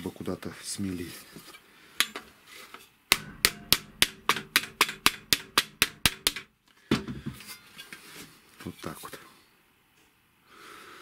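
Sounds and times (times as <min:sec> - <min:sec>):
mallet striking sheet metal: 0:03.1 - 0:06.6.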